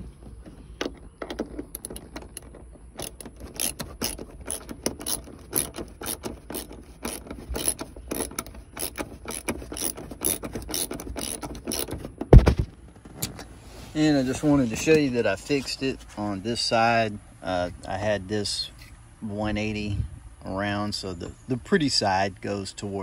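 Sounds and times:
ratchet wrench clicking: 0.8s - 12.0s.

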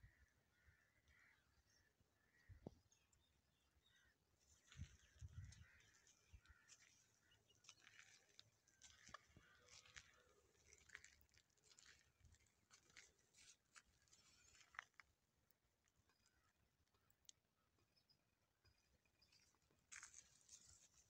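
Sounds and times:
faint crackles and clicks: 7.6s - 17.4s.

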